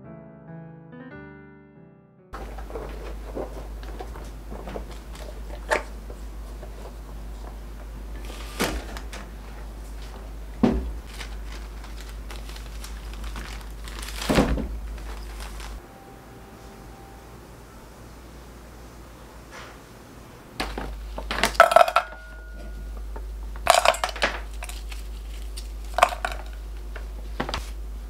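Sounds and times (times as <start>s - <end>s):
paper rustling: 2.4s - 15.8s, 23.7s - 27.8s
low hum: 9.0s - 28.0s.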